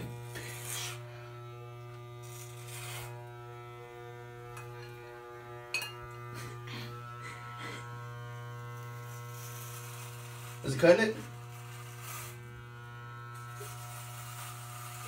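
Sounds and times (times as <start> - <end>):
electric hair clippers buzzing: 0.0 - 15.0
scratchy clipper bursts: 0.0 - 15.0.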